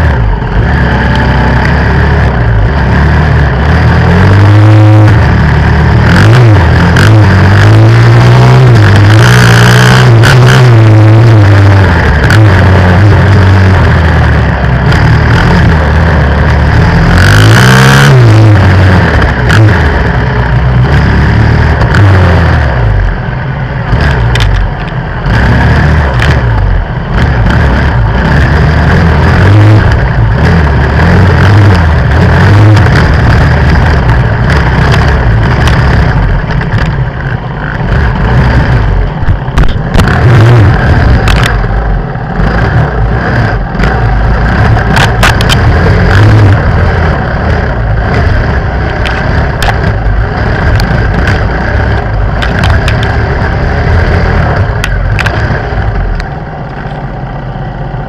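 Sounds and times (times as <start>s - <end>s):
dirt bike engine revving: 0.0s - 58.0s
sharp knocks and clatters: 32.4s - 41.7s, 43.8s - 46.5s, 48.1s - 55.6s.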